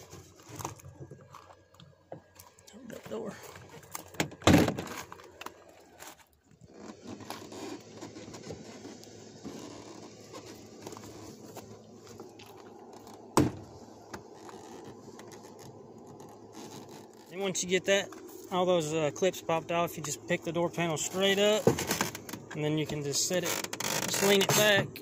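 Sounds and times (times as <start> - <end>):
loud pop: 13.4 - 13.6.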